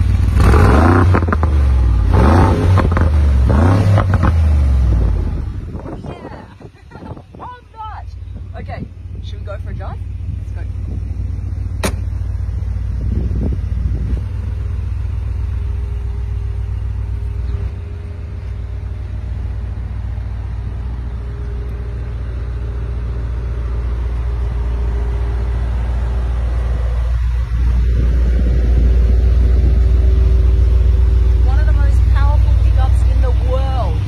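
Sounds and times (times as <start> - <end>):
engine exhaust rumbling: 0.0 - 34.0.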